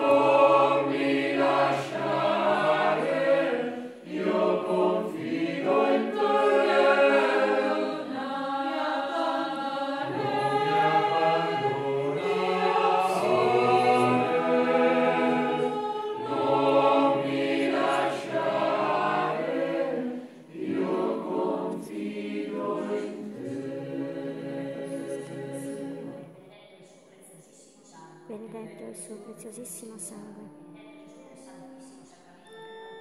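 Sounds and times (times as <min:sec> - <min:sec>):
choir singing a hymn: 0:00.0 - 0:26.4.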